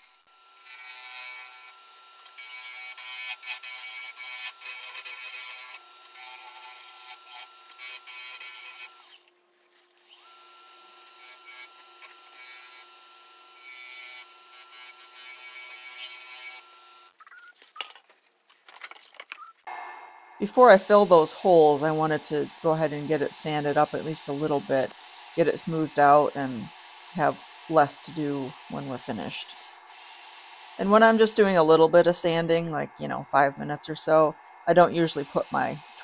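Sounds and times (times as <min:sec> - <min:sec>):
lathe motor whine: 0:10.0 - 0:17.1, 0:19.7 - 0:31.6
turning tool scraping wood: 0:20.5 - 0:31.5.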